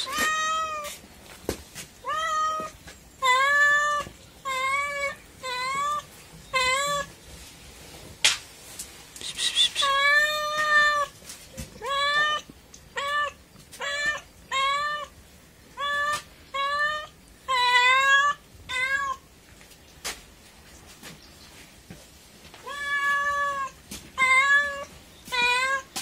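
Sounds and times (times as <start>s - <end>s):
cat meowing: 0.0s - 1.0s, 2.0s - 7.1s, 9.3s - 11.1s, 11.8s - 15.1s, 15.8s - 19.2s, 22.6s - 26.0s.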